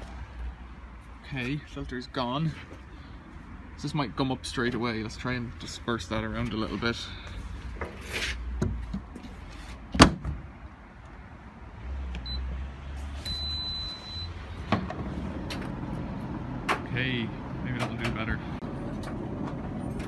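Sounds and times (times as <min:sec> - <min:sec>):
control panel beeps: 0:13.3 - 0:14.4.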